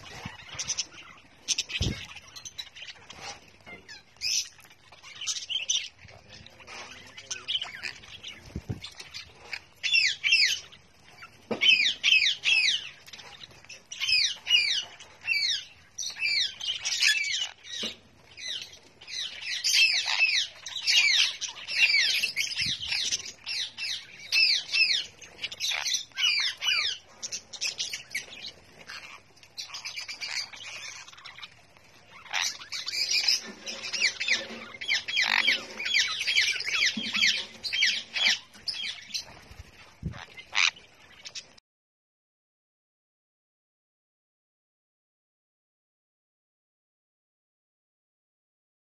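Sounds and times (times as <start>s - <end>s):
parrots squawking and chattering: 0.0s - 41.6s.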